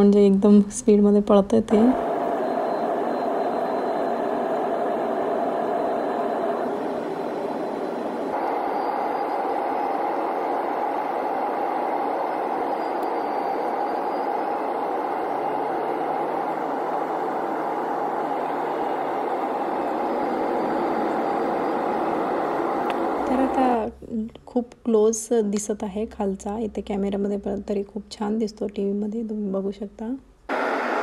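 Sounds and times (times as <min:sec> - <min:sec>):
jet engines and airflow in cabin: 0:01.2 - 0:24.0, 0:30.5 - 0:31.0.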